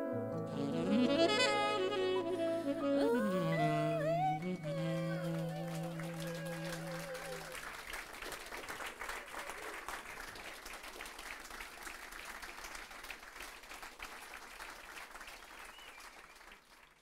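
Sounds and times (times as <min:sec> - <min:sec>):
audience applauding: 0:04.1 - 0:17.0.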